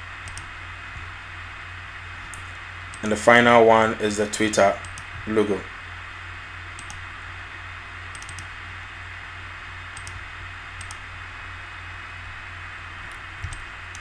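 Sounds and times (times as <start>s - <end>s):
low hum: 0.0s - 14.0s
microphone hiss: 0.0s - 14.0s
computer mouse clicks: 0.2s - 0.5s, 4.8s - 5.1s, 6.8s - 7.0s, 8.1s - 8.5s, 10.0s - 10.2s, 10.8s - 11.0s, 13.0s - 14.0s.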